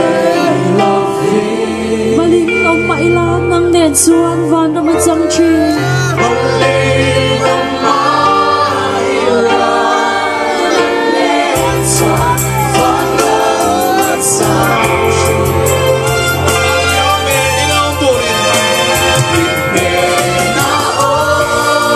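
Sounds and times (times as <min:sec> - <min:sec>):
crowd singing worship song: 0:00.0 - 0:03.7, 0:05.2 - 0:21.9
keyboard: 0:00.0 - 0:21.9
bass: 0:11.6 - 0:21.9.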